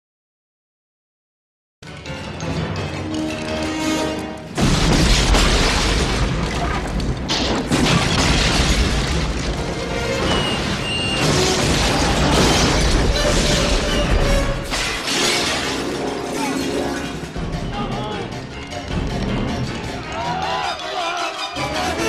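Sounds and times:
dramatic film score: 0:01.8 - 0:22.0
explosion boom and rumble: 0:04.6 - 0:15.0.

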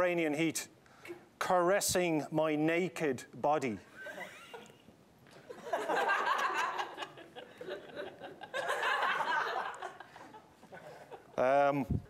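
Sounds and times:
studio audience laughing: 0:05.5 - 0:11.4.

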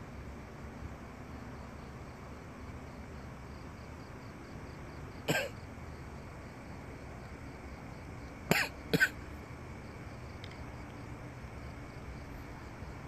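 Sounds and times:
faint insect chirping: 0:00.0 - 0:13.0
man coughing: 0:05.3 - 0:05.5.

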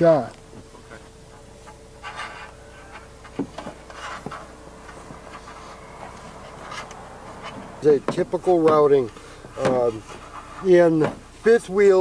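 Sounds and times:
faint steady hum: 0:00.0 - 0:12.0
cable rustling and scraping: 0:01.6 - 0:11.0.

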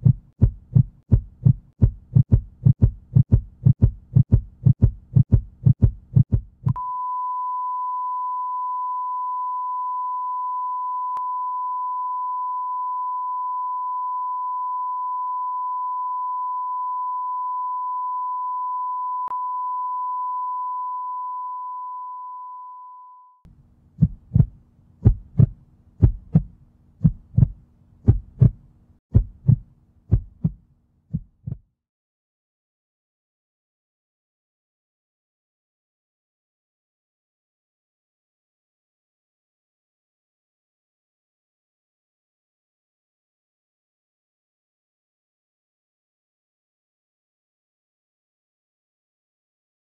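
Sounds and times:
heartbeat thumps: 0:00.0 - 0:06.8, 0:24.0 - 0:31.6
flatline beep: 0:06.7 - 0:23.4.

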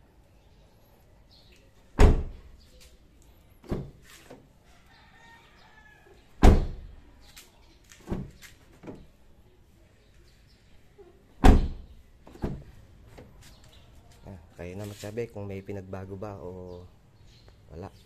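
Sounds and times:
car door slamming shut: 0:02.0 - 0:02.4, 0:06.4 - 0:06.9, 0:11.4 - 0:12.7.

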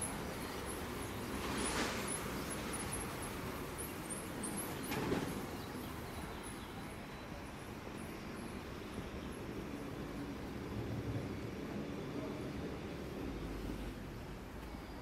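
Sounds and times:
small birds chirping: 0:00.0 - 0:10.5
traffic noise: 0:00.0 - 0:15.0.

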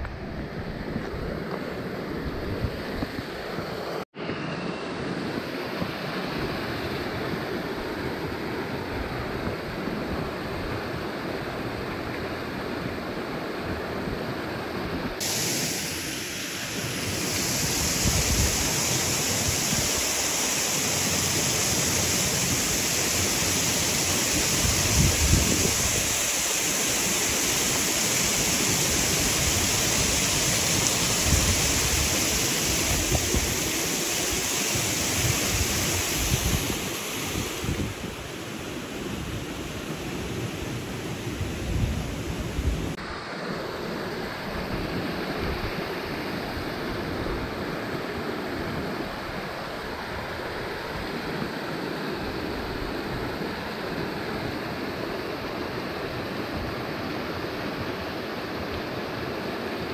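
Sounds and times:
creek water rushing: 0:04.6 - 0:59.9
wind buffeting microphone: 0:24.3 - 0:26.2, 0:31.1 - 0:33.7, 0:34.3 - 0:38.3.

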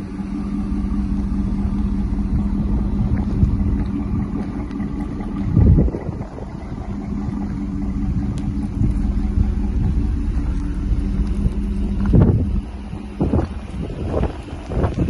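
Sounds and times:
car engine idling: 0:00.0 - 0:15.0
wind gust on microphone: 0:02.4 - 0:07.5, 0:08.1 - 0:15.0.

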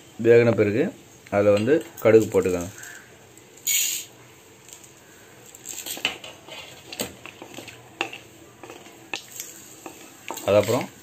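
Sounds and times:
mustard seeds crackling in oil: 0:01.2 - 0:04.0, 0:04.6 - 0:11.0
wooden spatula knocking pan: 0:07.4 - 0:11.0.

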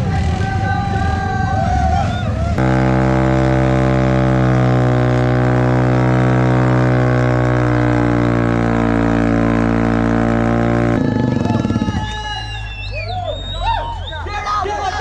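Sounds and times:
motorcycle engine droning: 0:00.0 - 0:14.1.

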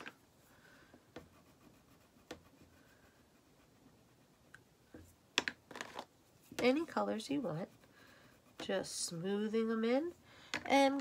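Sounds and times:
crayon scratching on paper: 0:01.2 - 0:04.7, 0:06.3 - 0:11.0.

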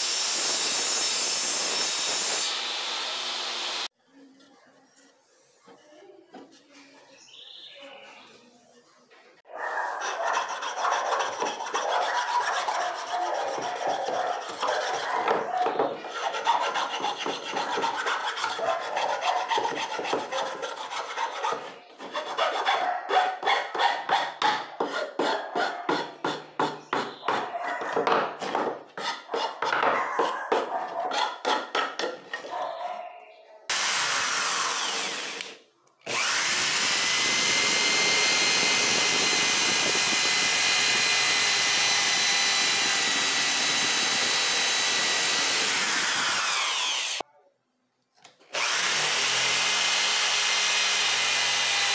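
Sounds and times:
cordless drill boring into wood: 0:00.0 - 0:03.9, 0:33.7 - 0:47.2, 0:48.5 - 0:51.9
file rasping against wood: 0:10.0 - 0:32.5.

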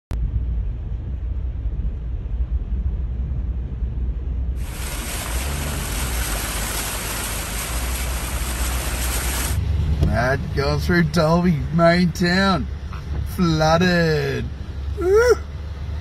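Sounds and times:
rushing hiss: 0:04.6 - 0:09.6.

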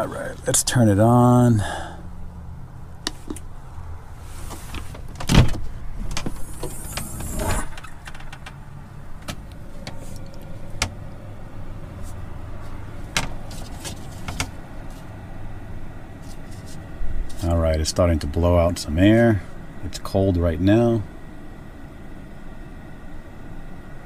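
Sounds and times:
heater blower fan humming: 0:00.0 - 0:24.0
clicks and knocks from ducting: 0:13.1 - 0:15.1.

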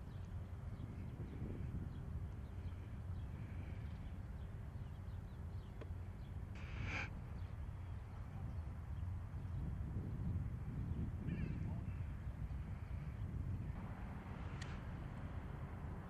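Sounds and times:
faint bird chirps: 0:02.4 - 0:09.7
harsh bird call: 0:06.6 - 0:07.1.

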